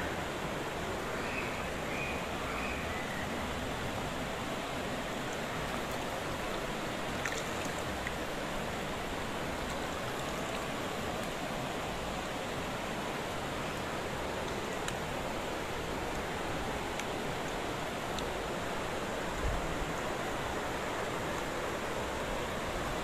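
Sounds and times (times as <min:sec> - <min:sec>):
steady rain hiss: 0:00.0 - 0:23.0
faint ticks of raindrops: 0:04.9 - 0:23.0.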